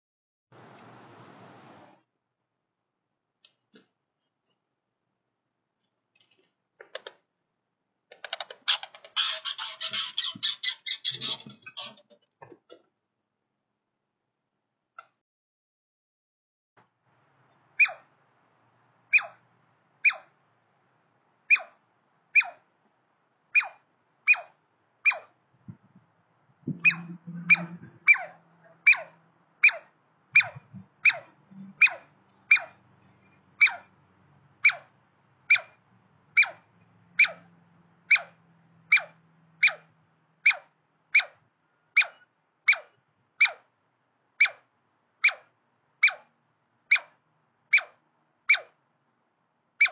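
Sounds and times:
squirrel calling: 0:08.1 - 0:12.0, 0:17.8 - 0:18.1, 0:19.1 - 0:19.4, 0:20.0 - 0:20.4, 0:21.5 - 0:22.7, 0:23.5 - 0:25.4, 0:26.7 - 0:43.7, 0:44.4 - 0:46.3, 0:46.9 - 0:48.8.

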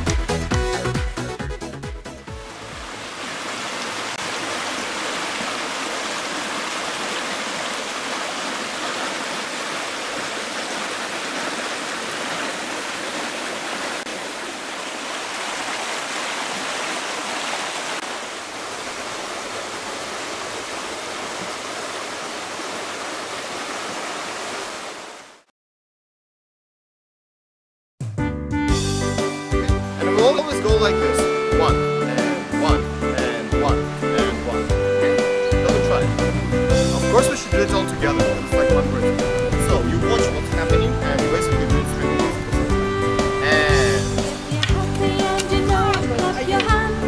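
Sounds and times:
river water rushing: 0:02.3 - 0:25.4, 0:41.5 - 0:47.0.

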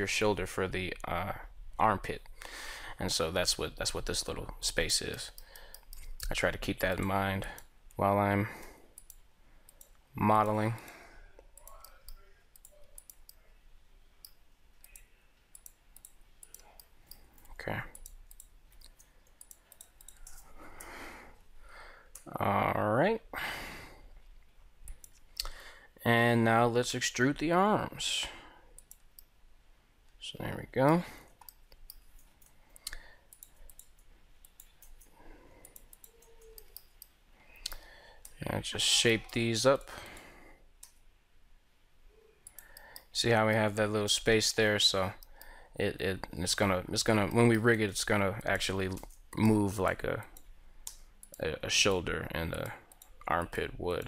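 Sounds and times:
computer mouse clicking: 0:05.0 - 0:08.0, 0:08.6 - 0:13.4, 0:14.2 - 0:21.0, 0:24.8 - 0:25.6, 0:28.7 - 0:29.3, 0:30.9 - 0:38.4, 0:42.4 - 0:43.1, 0:48.4 - 0:49.6, 0:50.2 - 0:54.0
mouse and keyboard clicking: 0:14.2 - 0:20.5, 0:31.4 - 0:38.4
keyboard clicking: 0:14.2 - 0:20.9.

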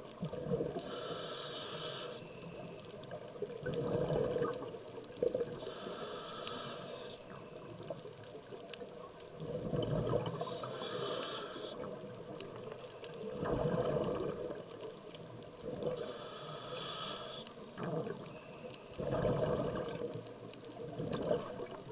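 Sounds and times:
exhaled air bubbling: 0:00.0 - 0:01.2, 0:03.4 - 0:05.8, 0:09.2 - 0:16.1, 0:16.8 - 0:18.3, 0:18.9 - 0:21.9
regulator hissing inhales: 0:00.8 - 0:02.4, 0:05.6 - 0:07.3, 0:10.4 - 0:12.0, 0:16.0 - 0:17.5.

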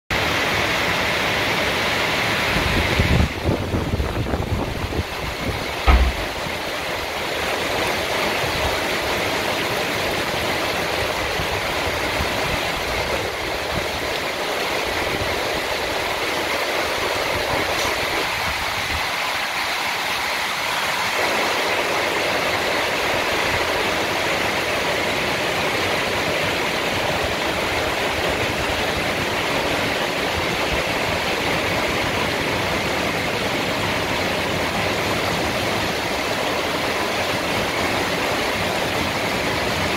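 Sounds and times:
heavy rain pouring: 0:00.1 - 0:39.9
low thumps: 0:05.8 - 0:06.6.

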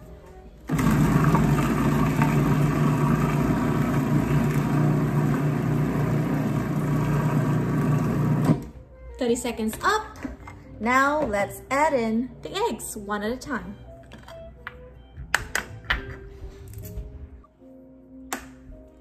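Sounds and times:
food processor motor running: 0:00.7 - 0:08.6.

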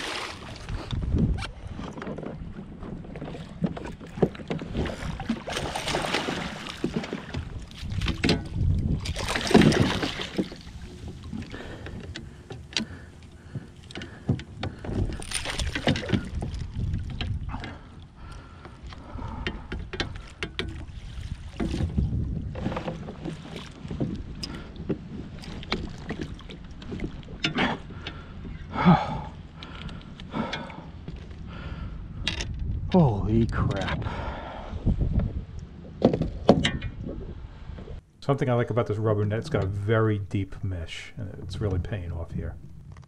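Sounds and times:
water splashing: 0:00.0 - 0:00.8, 0:03.4 - 0:18.6
fish thrashing at water surface: 0:04.7 - 0:11.9.

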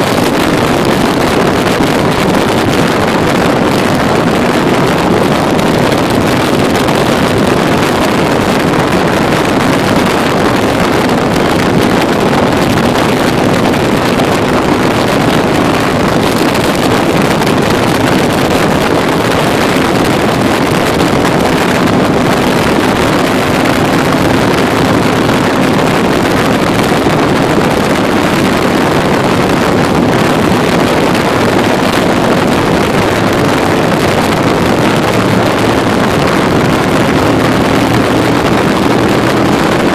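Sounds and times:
motorcycle engine hum: 0:00.0 - 0:39.9
wind rush over microphone: 0:00.0 - 0:39.9.

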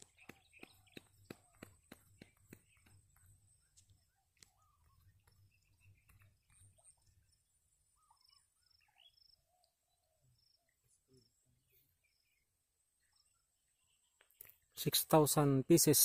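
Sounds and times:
faint high chirps: 0:03.6 - 0:14.6.

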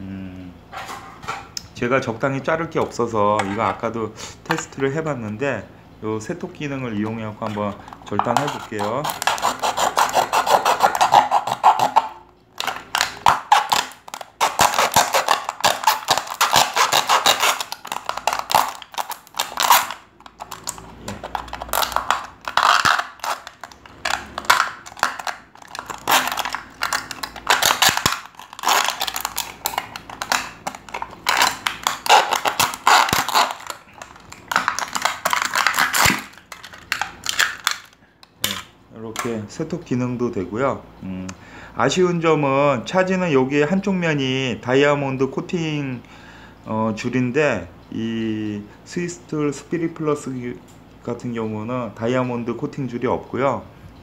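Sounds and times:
hand saw rasping on metal: 0:08.4 - 0:12.0.

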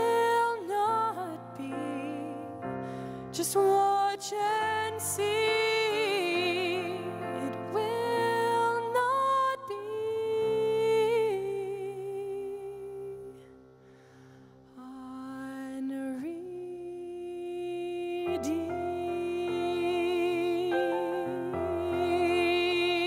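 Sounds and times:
woman singing worship song: 0:00.0 - 0:13.8, 0:14.6 - 0:23.0.

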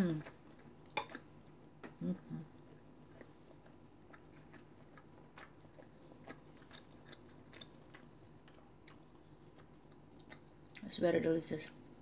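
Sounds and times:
chewing mouth clicks: 0:02.7 - 0:10.9.

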